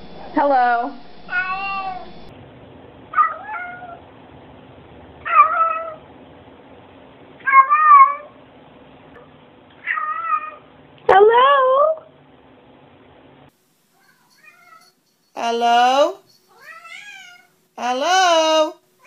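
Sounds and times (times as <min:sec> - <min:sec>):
cat meowing: 0:01.3 - 0:02.1, 0:03.2 - 0:04.0, 0:07.4 - 0:08.3, 0:09.8 - 0:10.6, 0:16.5 - 0:17.6.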